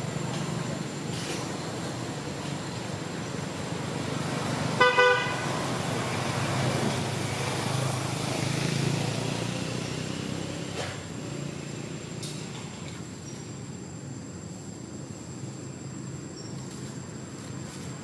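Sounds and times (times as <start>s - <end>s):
vehicle horn double beep: 4.8s - 5.4s.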